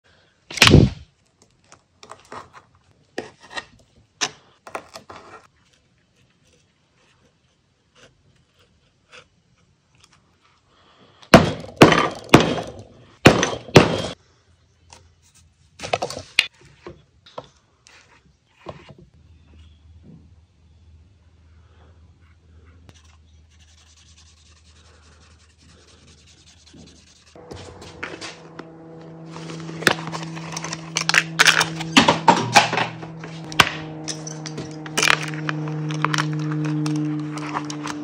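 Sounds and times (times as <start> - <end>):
knife cutting leather: 6.3 - 10.2
leather and tools knocking and scraping: 26.7 - 38.0.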